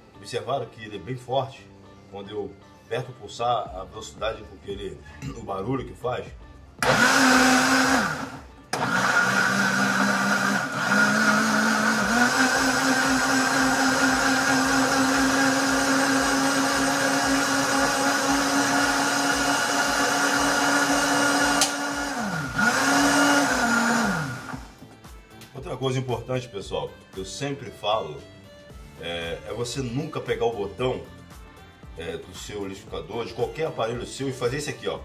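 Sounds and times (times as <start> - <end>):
blender motor chopping fruit: 6.8 - 24.8.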